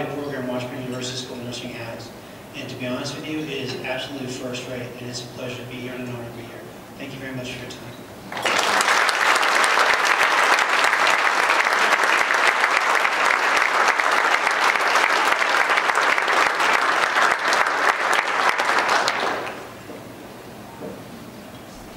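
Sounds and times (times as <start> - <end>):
audience applauding: 8.3 - 19.8.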